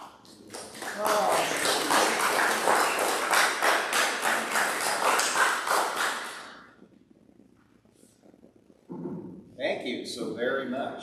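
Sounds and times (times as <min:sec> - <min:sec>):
group applauding: 0:00.0 - 0:06.7.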